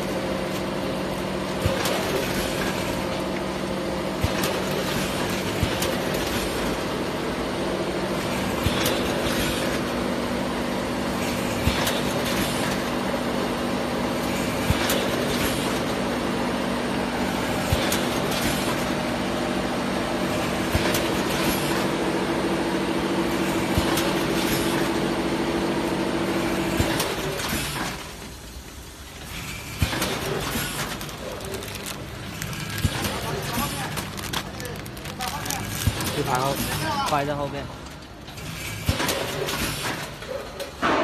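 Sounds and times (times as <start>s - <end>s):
packing machine humming: 0.0s - 41.0s
machine sharp knock: 40.8s - 41.0s.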